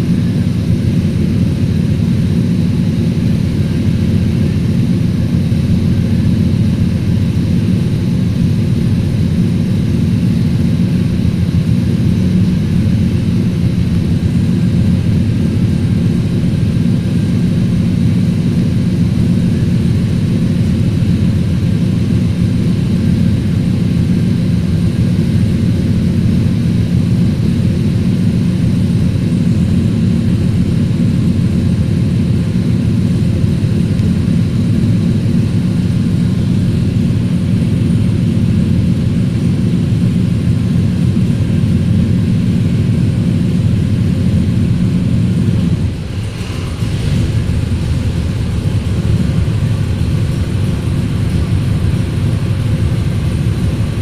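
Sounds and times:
car engine idling: 0.0 - 54.0.

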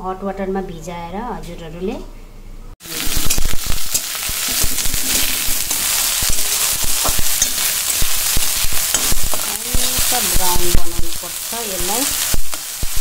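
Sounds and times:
metal spatula scraping pan: 2.8 - 10.6
food sizzling in a pan: 2.8 - 13.0.

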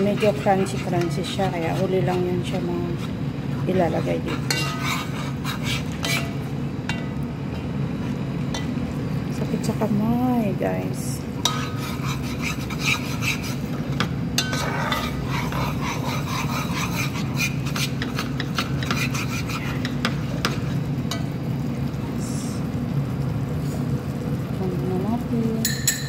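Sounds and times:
metal ladle scraping a pot: 0.0 - 7.0, 11.4 - 21.2
steady low hum: 0.0 - 26.0
sauce simmering: 11.2 - 25.8.

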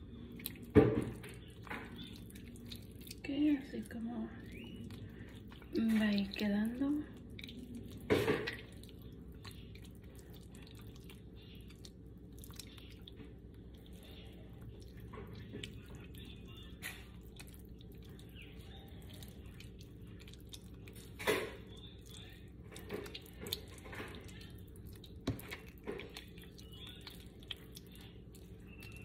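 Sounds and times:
hands squishing raw chicken: 0.0 - 29.0.

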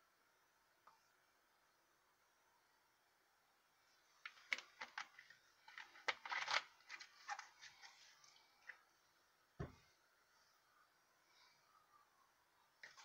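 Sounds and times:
plastic bottle crinkling: 4.2 - 8.8
soft thump on table: 9.6 - 9.8.

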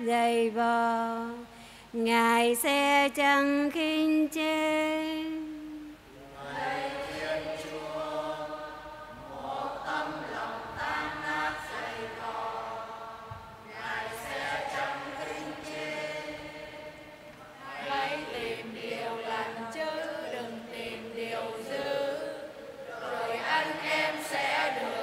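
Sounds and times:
congregation chanting in unison: 6.2 - 25.0.

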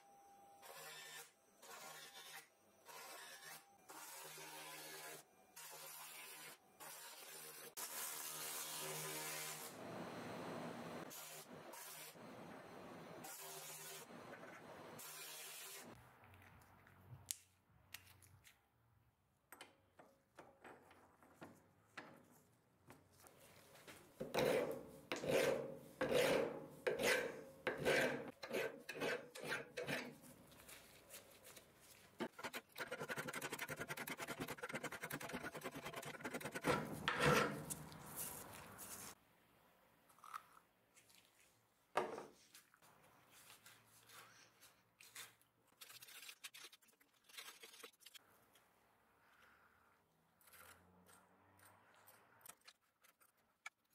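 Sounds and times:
file rasping on steel: 24.2 - 30.2, 32.2 - 37.8.

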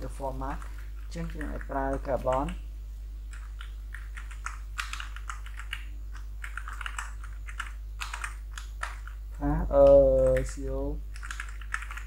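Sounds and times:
person speaking: 0.0 - 2.6, 9.3 - 11.1
steady low hum: 0.0 - 12.0
typing on a computer keyboard: 0.5 - 2.6, 3.3 - 9.2, 9.8 - 12.0.

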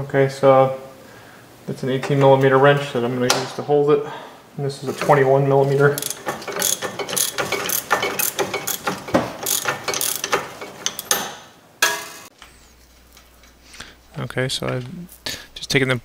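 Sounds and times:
ratchet wrench clicking: 6.0 - 11.3.

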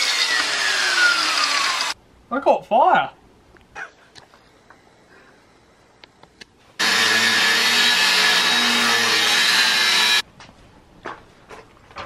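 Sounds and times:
angle grinder grinding steel: 0.0 - 2.0, 6.8 - 10.2.

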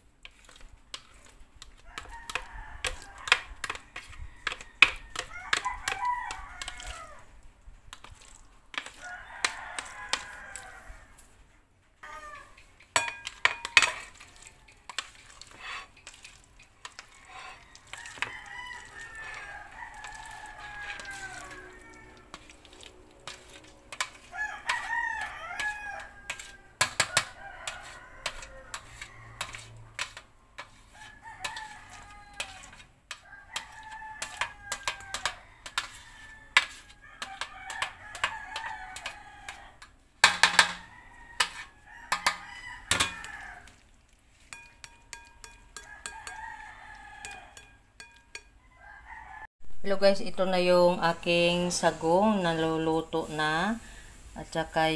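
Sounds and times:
rooster crowing: 1.8 - 7.3, 9.0 - 11.3, 12.0 - 12.6, 17.0 - 29.9, 30.9 - 39.9, 40.5 - 43.8, 45.8 - 47.8, 48.6 - 49.5.

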